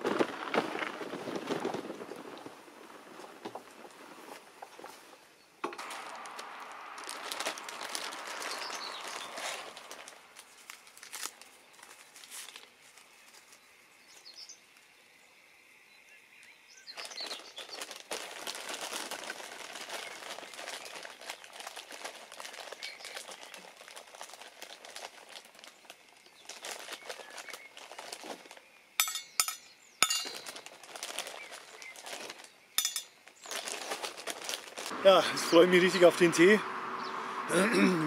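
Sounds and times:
plastic bag rustling: 0.0s - 14.4s, 16.9s - 35.0s
bird chirping: 7.9s - 10.2s, 13.0s - 17.9s, 28.6s - 33.8s, 35.4s - 37.5s.

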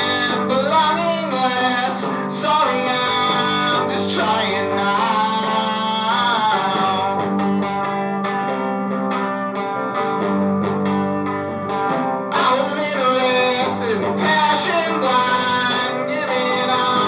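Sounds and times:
punk rock song: 0.0s - 17.0s.

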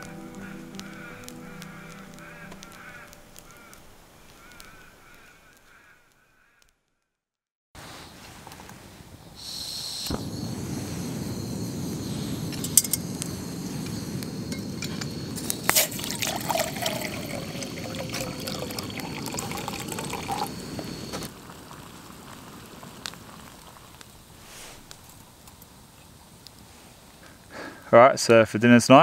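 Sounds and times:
sharp clinks: 12.5s - 13.1s
liquid pouring: 15.6s - 23.4s.

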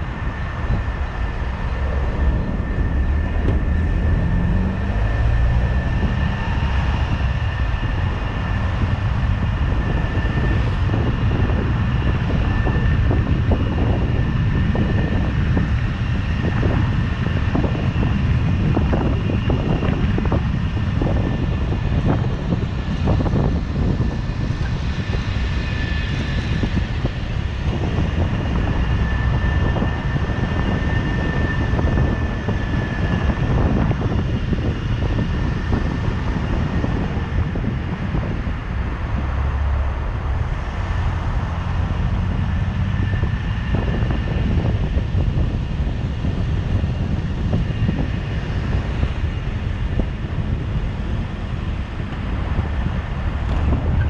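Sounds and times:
car road and engine rumble: 0.0s - 54.0s
wind on microphone: 0.0s - 54.0s.

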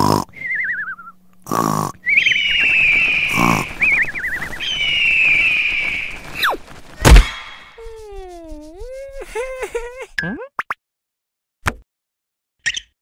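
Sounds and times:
cartoon snoring: 0.0s - 0.4s, 1.4s - 2.0s.

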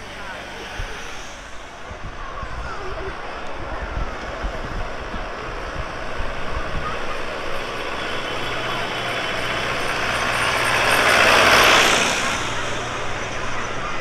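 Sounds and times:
diesel tractor engines passing: 0.0s - 14.0s.

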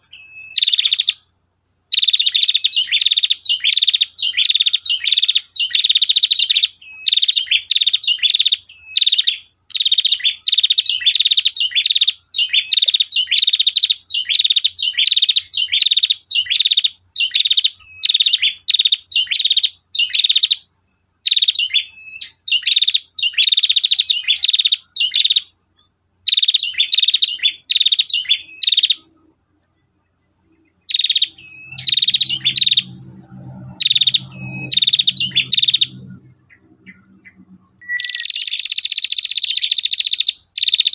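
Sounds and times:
bird chattering trills: 0.0s - 1.3s, 1.9s - 25.6s, 26.2s - 40.9s
faint low hum: 24.1s - 38.6s.

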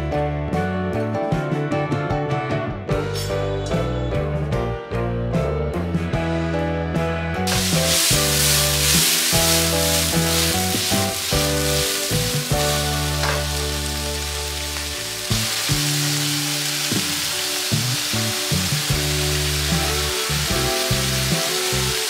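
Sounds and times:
background music: 0.0s - 22.0s
meat sizzling in a wok: 7.5s - 22.0s.

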